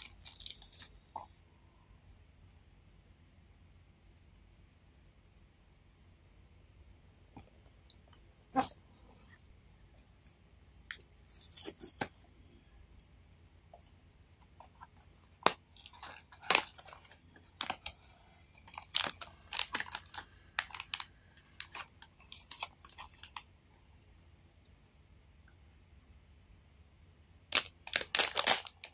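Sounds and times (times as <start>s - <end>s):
cardboard packaging crinkling: 0.0s - 1.3s, 14.7s - 23.5s, 27.5s - 28.9s.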